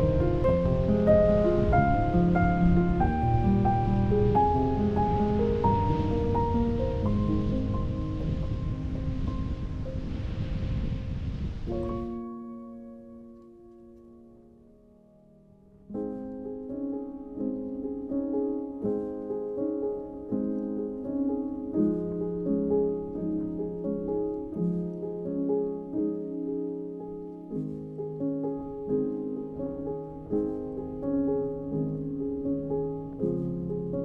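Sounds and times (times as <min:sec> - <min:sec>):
background piano music: 0:00.0 - 0:34.0.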